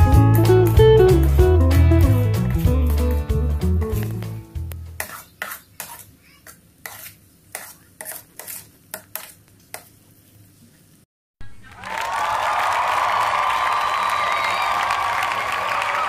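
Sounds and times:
spatula scraping metal pan: 4.9 - 10.0.

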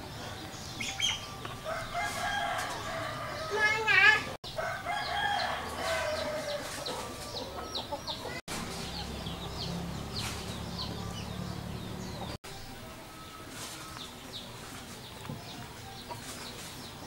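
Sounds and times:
bird calls: 0.0 - 3.6.

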